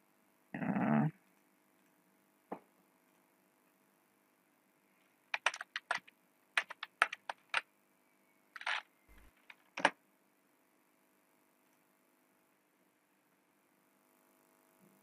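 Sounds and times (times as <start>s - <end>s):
keyboard typing clicks: 5.3s - 7.6s, 8.6s - 9.9s.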